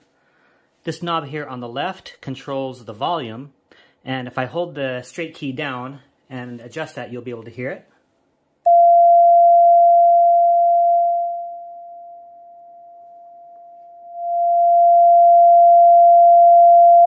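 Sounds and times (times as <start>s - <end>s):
steady oscillator beep: 8.7s - 17.0s.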